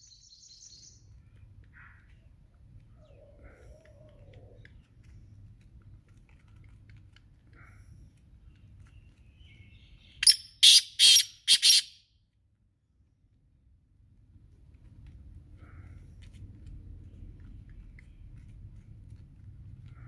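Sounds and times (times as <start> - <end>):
francolin calling harsh notes: 10.2 - 12.0.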